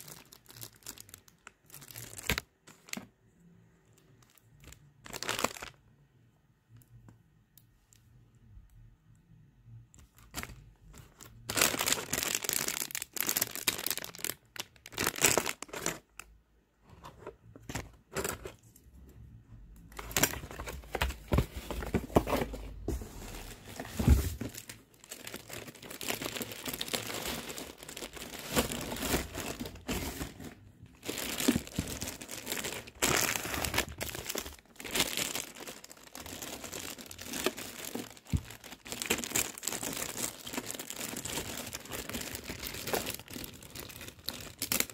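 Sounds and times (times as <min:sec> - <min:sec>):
plastic packaging crinkling: 0:00.0 - 0:03.2, 0:03.9 - 0:05.8, 0:10.0 - 0:16.3, 0:19.9 - 0:44.9
cardboard rustling and scraping: 0:16.8 - 0:18.6, 0:20.2 - 0:24.7, 0:28.2 - 0:34.5.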